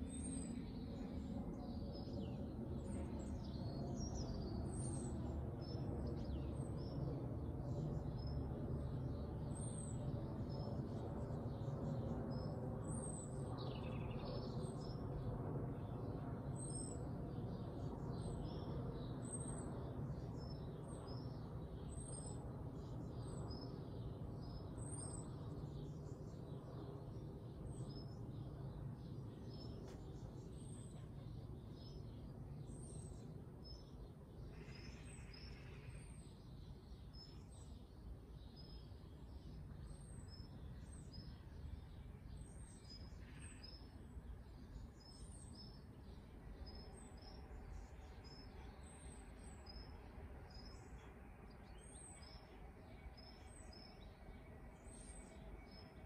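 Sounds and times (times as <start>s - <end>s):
small bird high call: 34.5s - 36.2s.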